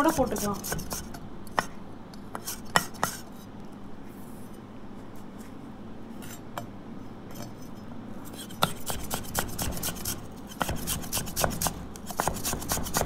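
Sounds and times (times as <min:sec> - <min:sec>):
knife chopping on wooden board: 0:08.6 - 0:13.0.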